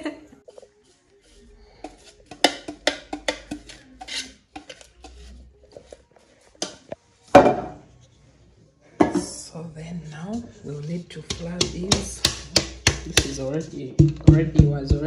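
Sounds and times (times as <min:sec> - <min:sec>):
brush scraping metal pan: 0:00.5 - 0:05.5.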